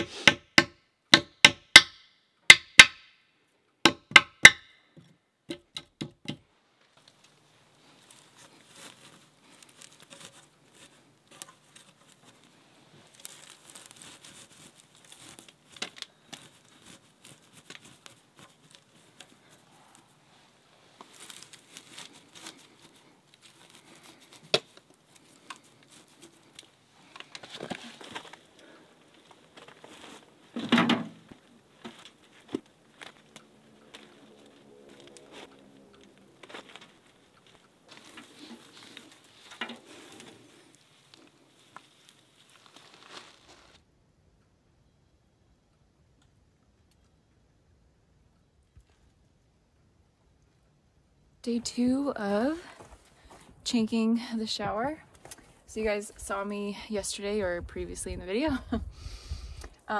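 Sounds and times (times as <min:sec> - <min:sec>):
hammer tapping nails: 0:03.9 - 0:04.7
moss crinkling and tearing: 0:06.9 - 0:43.8.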